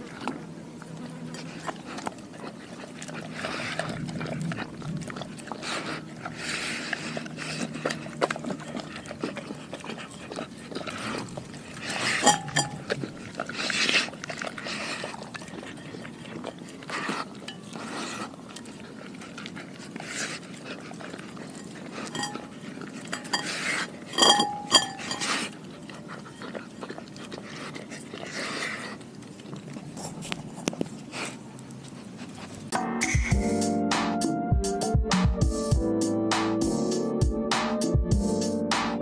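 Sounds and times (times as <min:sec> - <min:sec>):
dog licking and lapping: 0:00.0 - 0:32.8
glass bowl clinking on concrete: 0:12.2 - 0:13.0, 0:21.6 - 0:25.5.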